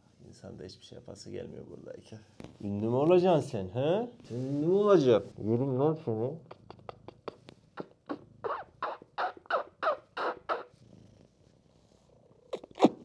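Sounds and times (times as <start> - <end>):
squeaky kisses: 7.3 - 10.7, 12.5 - 13.0.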